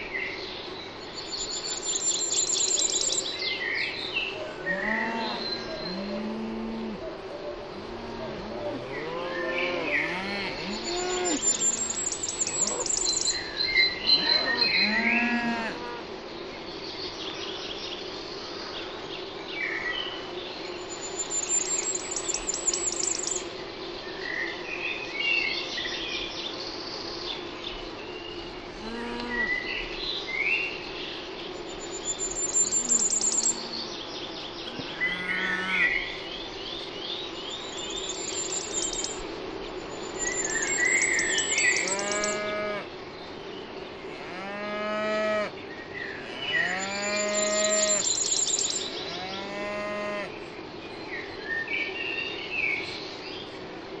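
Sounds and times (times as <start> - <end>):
songbirds singing and chirping: 0.0 - 54.0
steady low hum: 0.0 - 54.0
cattle mooing: 4.7 - 7.0, 8.0 - 11.5, 49.1 - 50.3.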